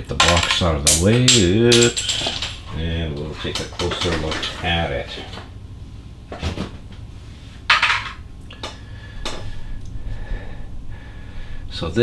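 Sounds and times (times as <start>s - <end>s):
faint steady whine: 0.0s - 12.0s.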